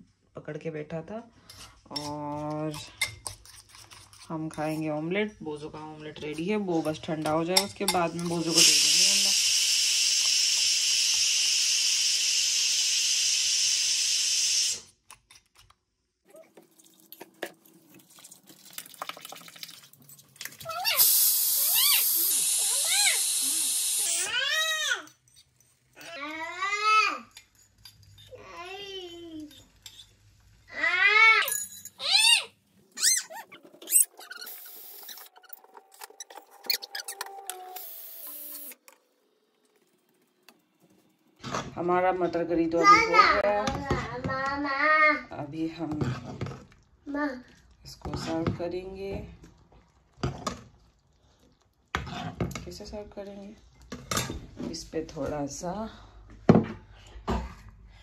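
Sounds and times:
food hissing on stove: 8.1 - 14.9, 20.8 - 24.5, 34.4 - 35.3, 37.7 - 38.8
pet whining: 32.9 - 38.8.

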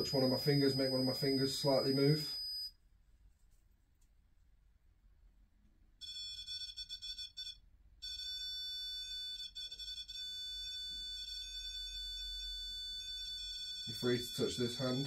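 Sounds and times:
high electronic tone: 0.0 - 2.7, 11.4 - 15.0.

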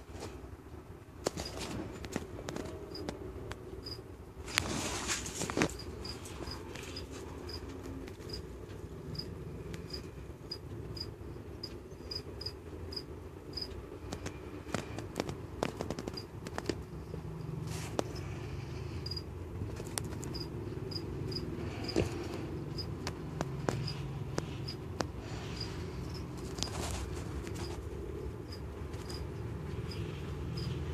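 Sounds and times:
cricket chirping: 3.8 - 4.0, 5.6 - 13.8, 16.9 - 30.9.

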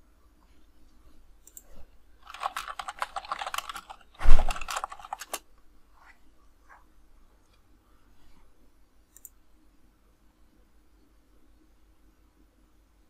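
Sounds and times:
typing on computer keyboard: 2.2 - 5.4.

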